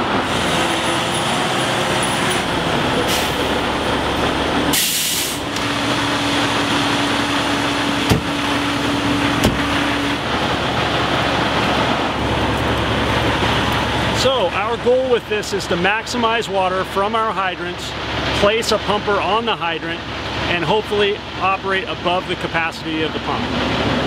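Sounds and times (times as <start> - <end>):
diesel engine running: 0.0 - 24.0
air brakes hissing: 3.0 - 3.5, 4.7 - 5.5
door knocks: 8.0 - 8.4, 9.4 - 9.8.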